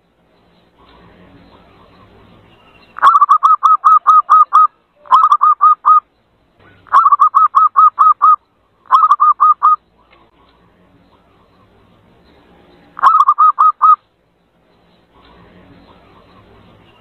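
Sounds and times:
dove cooing: 3.0 - 6.0, 6.6 - 9.8, 13.0 - 14.0.

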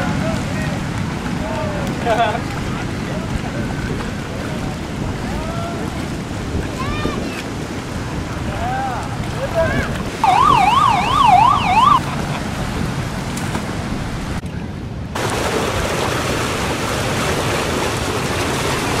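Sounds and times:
flowing water: 0.0 - 19.0
surf: 0.0 - 19.0
wind: 0.0 - 19.0
police siren yelping: 10.2 - 12.1.

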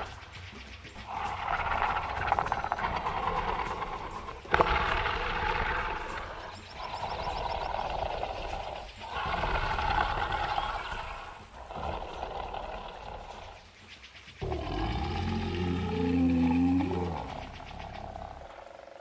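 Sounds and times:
rough monster roars: 1.1 - 13.6, 14.4 - 19.0
deep bull-like bellow: 14.4 - 18.6.

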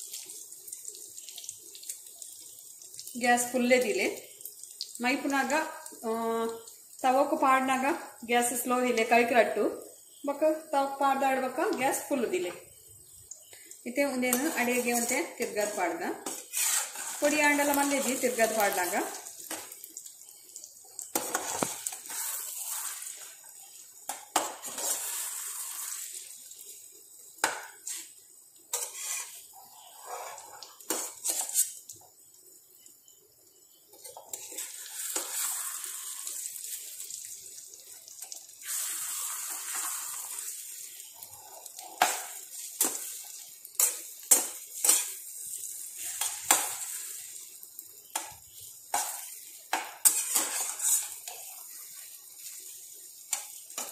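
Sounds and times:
food sizzling in a frying pan: 0.0 - 53.9
metal spatula scraping and knocking pan: 14.3 - 18.6, 28.7 - 31.8, 43.8 - 45.2, 48.9 - 51.5.

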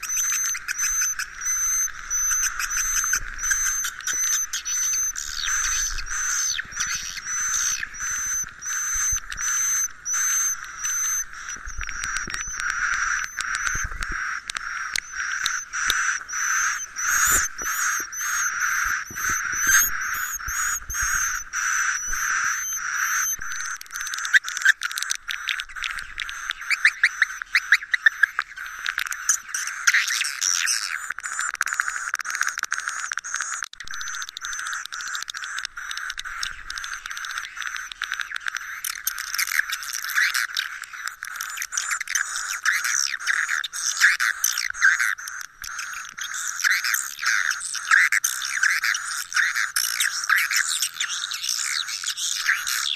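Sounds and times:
swiftlets twittering: 0.0 - 30.3.

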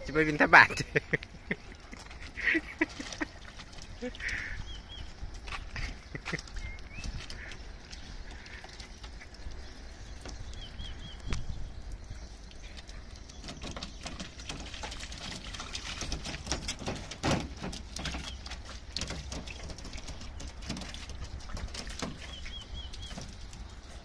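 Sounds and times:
puppy paws pattering and splashing: 0.0 - 24.0
bird chirping: 4.0 - 15.2, 21.2 - 24.0.

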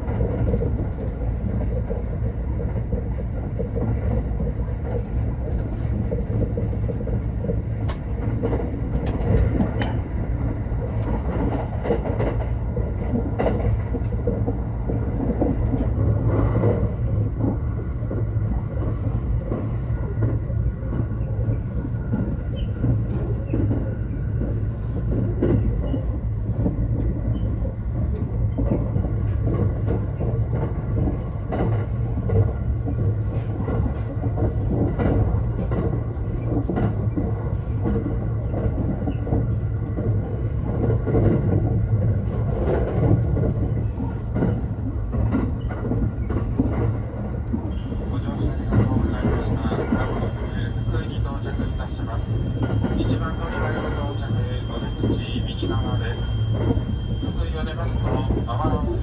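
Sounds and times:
train wheels rumbling on rail: 0.0 - 59.0
faint clicks from track: 4.8 - 10.0.

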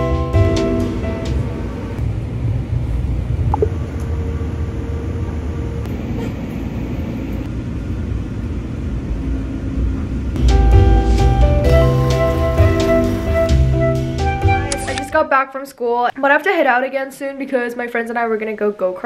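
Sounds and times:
train wheels and motors rumbling: 0.0 - 13.1.

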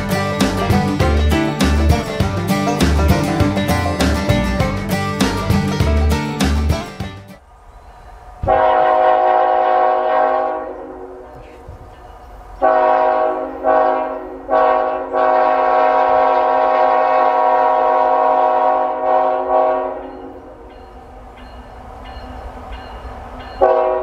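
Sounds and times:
locomotive air horn: 8.4 - 11.3, 12.6 - 20.5, 23.6 - 24.0.

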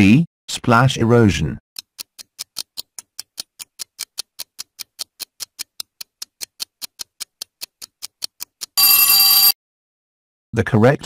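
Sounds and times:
loud bell ringing: 8.8 - 9.5.

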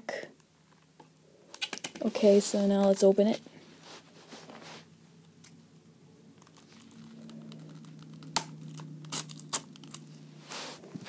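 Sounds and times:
scissors snipping plastic: 6.4 - 10.1
plastic wrap crinkling: 6.4 - 10.8.

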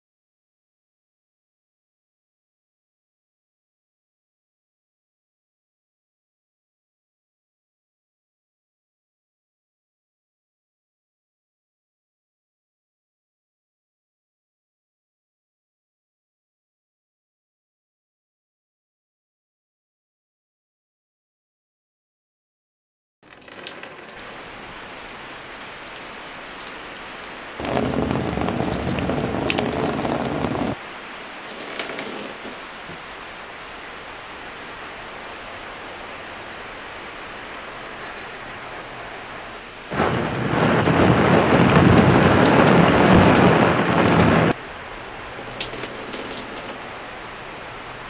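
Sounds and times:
rain falling: 23.2 - 48.0.

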